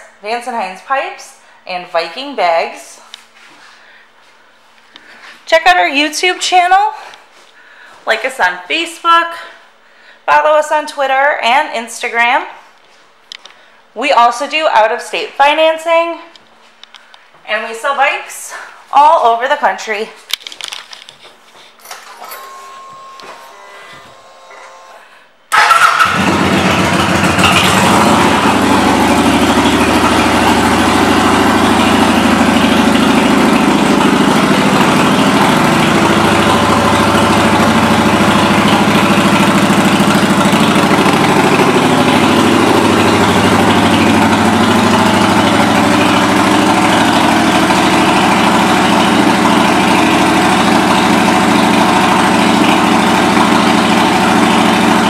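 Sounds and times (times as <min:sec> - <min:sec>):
motorcycle engine starting: 0:21.8 - 0:55.0
motorcycle engine idling: 0:25.5 - 0:55.0.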